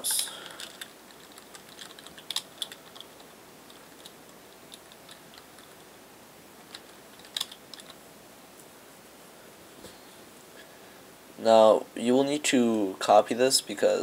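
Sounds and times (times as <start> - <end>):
faint steady hiss: 0.0 - 14.0
keyboard keys clicking: 0.5 - 5.8, 6.7 - 8.0.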